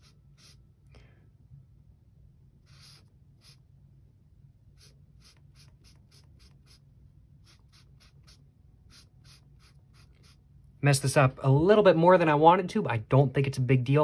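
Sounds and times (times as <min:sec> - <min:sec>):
highlighter scratching on paper: 0:00.0 - 0:00.7, 0:02.6 - 0:03.7, 0:04.7 - 0:06.8, 0:07.4 - 0:10.4.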